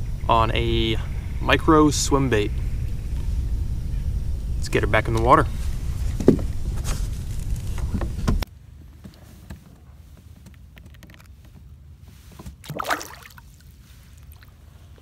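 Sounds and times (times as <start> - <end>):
wind rumble on microphone: 0.0 - 8.4
microphone handling knocks: 6.0 - 8.4
fish splashing in water: 12.6 - 14.7.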